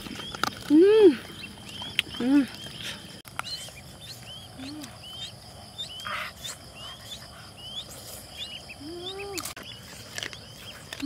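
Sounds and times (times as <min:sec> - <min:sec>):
ducklings peeping: 0:00.0 - 0:11.0
faint insect drone: 0:00.7 - 0:11.0.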